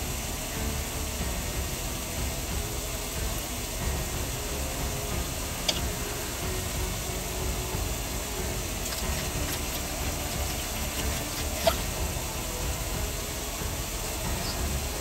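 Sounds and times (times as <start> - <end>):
low rumble: 0.0 - 15.0
hands squishing moist food: 8.6 - 12.1.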